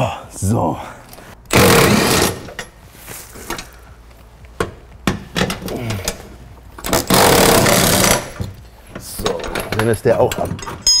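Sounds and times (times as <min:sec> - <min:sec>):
cordless impact wrench hammering: 0:06.8 - 0:08.6.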